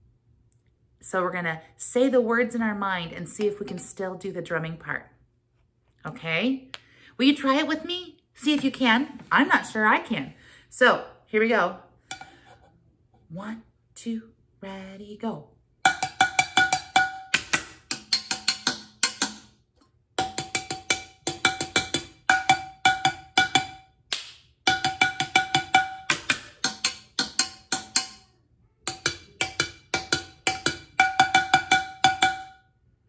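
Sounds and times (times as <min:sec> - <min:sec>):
wooden spoons drumming on metal pot: 0:15.8 - 0:19.6, 0:20.2 - 0:23.9, 0:24.6 - 0:32.6.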